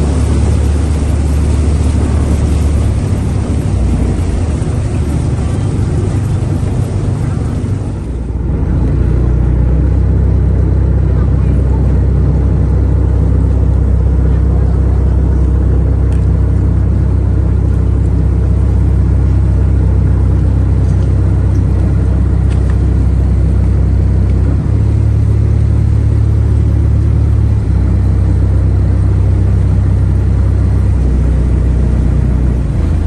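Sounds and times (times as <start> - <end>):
motorboat engine rumbling: 0.0 - 33.0.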